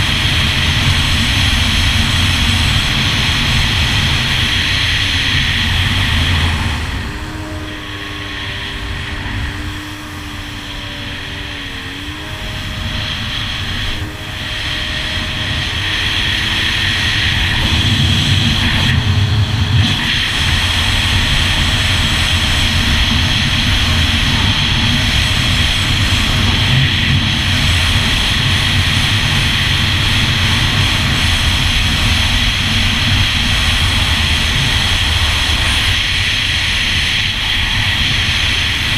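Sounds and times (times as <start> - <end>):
watercraft engine running: 0.0 - 38.9
wind rush: 0.0 - 38.9.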